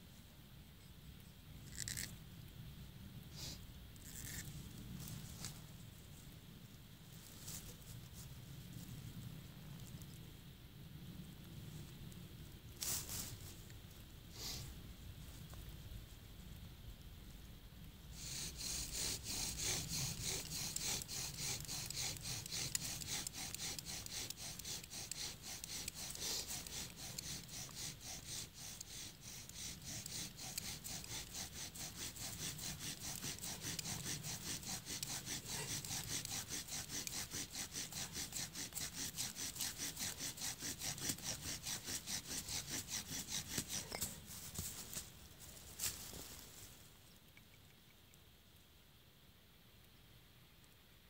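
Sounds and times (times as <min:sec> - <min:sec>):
wooden spindle rasping on board: 0:18.2 - 0:44.2.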